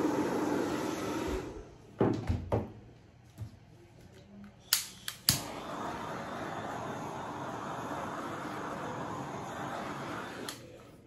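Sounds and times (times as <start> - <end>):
hairdryer blowing: 0.0 - 1.7, 5.3 - 10.8
torch flame hissing: 0.0 - 1.8, 4.7 - 11.0
torch igniter clicks: 4.7 - 5.6, 10.1 - 10.8.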